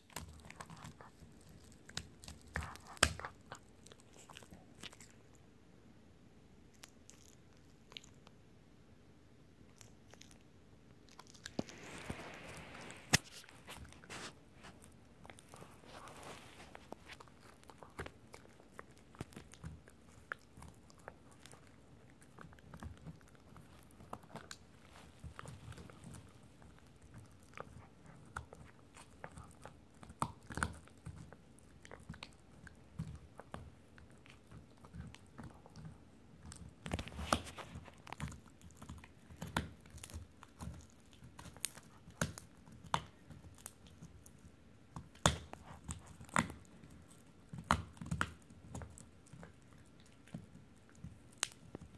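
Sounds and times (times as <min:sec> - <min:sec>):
dog chewing a rawhide bone: 0:00.0 - 0:05.4, 0:09.7 - 0:51.9
teeth clicking on rawhide: 0:00.1 - 0:05.2, 0:16.9 - 0:51.9.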